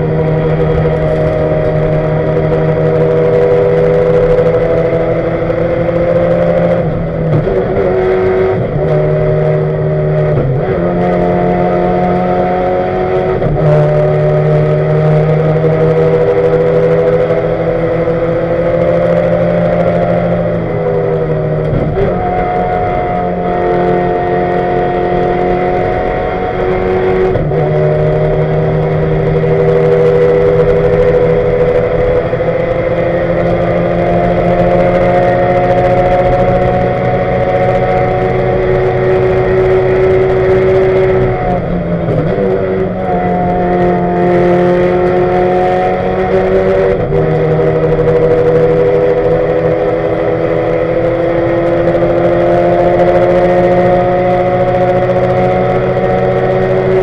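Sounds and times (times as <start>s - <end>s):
race car engine revving under load: 0.0s - 57.0s.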